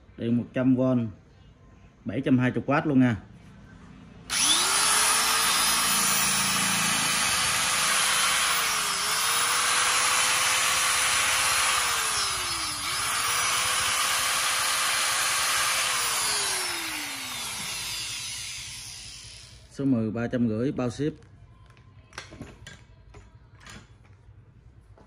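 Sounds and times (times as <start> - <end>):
angle grinder whining: 4.3 - 19.7.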